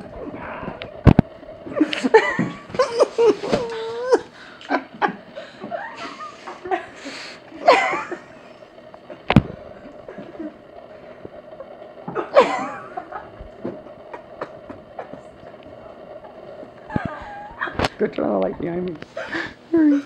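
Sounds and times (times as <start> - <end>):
people laughing and giggling: 1.7 - 8.5, 12.1 - 15.5.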